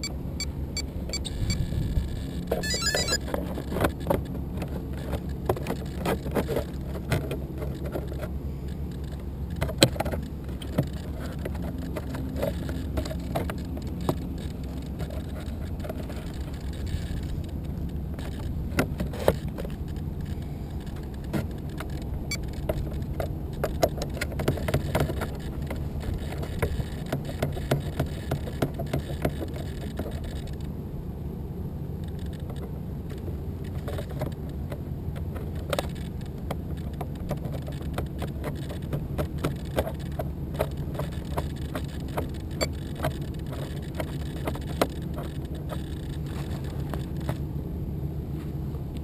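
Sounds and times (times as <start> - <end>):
handling clicks and knocks: 1.0 - 30.7, 32.0 - 47.5.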